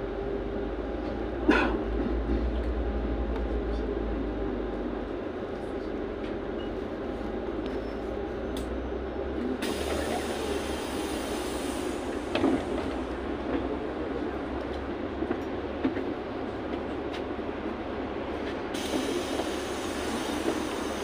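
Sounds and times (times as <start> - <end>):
bus engine rumble: 0.0 - 21.0
air hiss: 9.6 - 12.1, 18.8 - 21.0.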